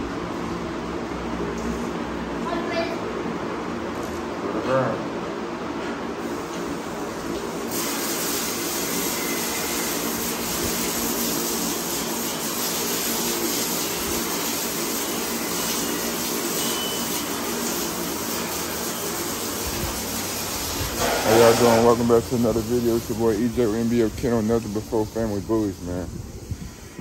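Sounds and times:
water spraying hiss: 6.2s - 27.0s.

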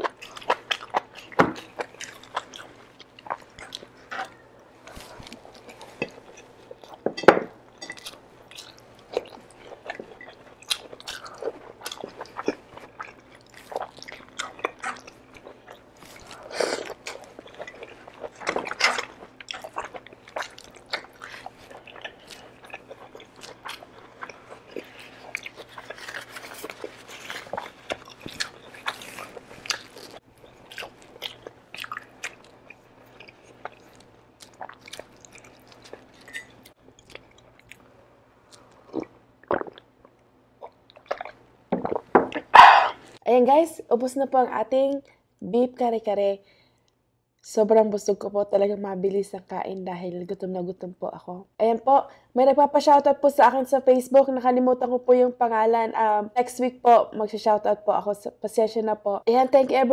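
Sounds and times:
chewing and mouth sounds: 0.0s - 7.0s, 7.8s - 37.9s, 38.5s - 43.2s.

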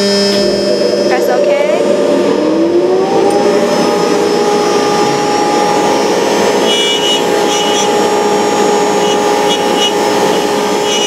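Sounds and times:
vacuum rushing noise: 0.0s - 10.7s
router spindle whine: 0.0s - 11.0s
high whistle: 6.6s - 8.0s, 9.0s - 11.0s.

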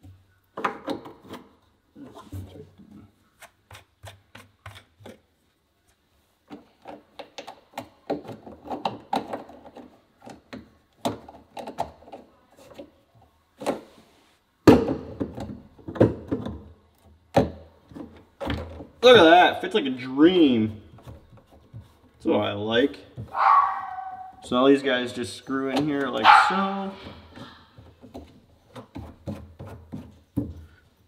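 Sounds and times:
plastic pipe fittings clicking and knocking: 0.0s - 1.6s, 2.8s - 5.3s, 6.4s - 13.8s, 14.7s - 19.0s, 20.8s - 22.3s, 27.0s - 30.9s.

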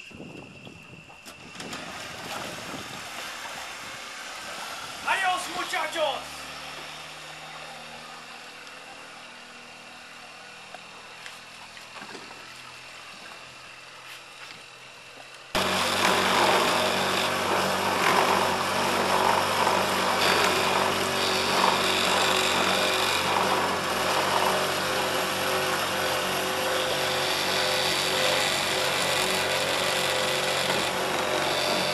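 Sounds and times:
rushing water: 1.6s - 6.4s
electric motor whine: 6.2s - 31.9s.

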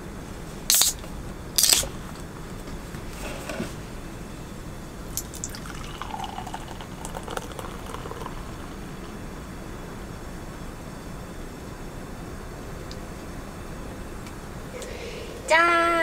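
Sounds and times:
beer can opening hiss: 0.7s - 1.0s, 1.6s - 1.9s
beer pouring and fizzing: 5.1s - 9.5s.

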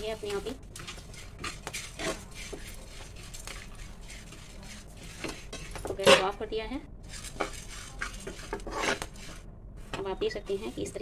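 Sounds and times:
spoon scraping grains in pan: 0.0s - 6.3s, 7.0s - 9.4s.

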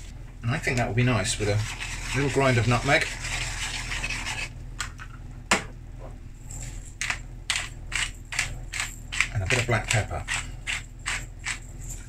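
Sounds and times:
spice grinder rasping: 6.7s - 12.0s.

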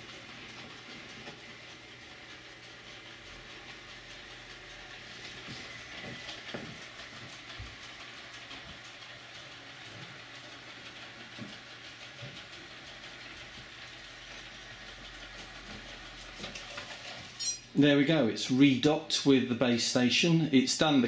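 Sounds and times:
robotic vacuum cleaner whirring: 0.0s - 17.2s.

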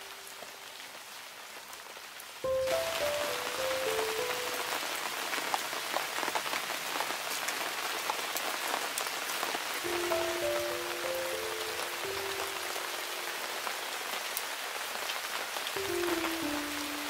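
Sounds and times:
background melody: 2.4s - 5.0s, 9.8s - 13.9s, 15.8s - 17.0s.

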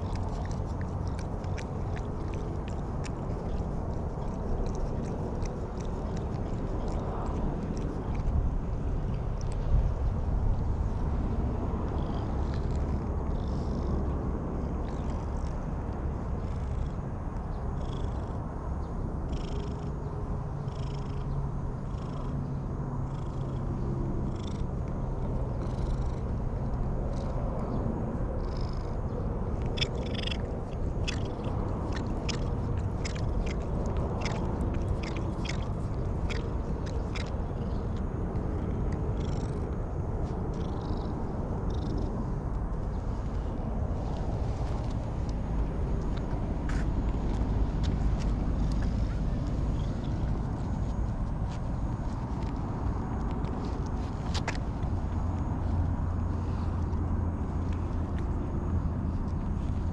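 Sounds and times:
cat purring: 0.0s - 8.4s, 19.3s - 19.9s, 24.2s - 26.3s, 28.4s - 39.7s, 40.5s - 42.1s
cat licking with rasping tongue: 0.0s - 9.8s, 29.5s - 41.1s.

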